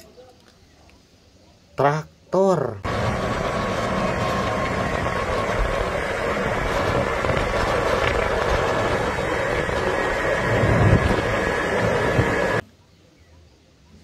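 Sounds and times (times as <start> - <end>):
tractor engine running: 2.8 - 12.6.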